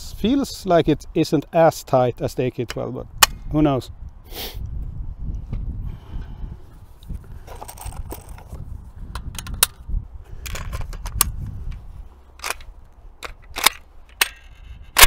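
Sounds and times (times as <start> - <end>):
metal clicks of rifle action: 9.1 - 9.8, 10.4 - 15.0.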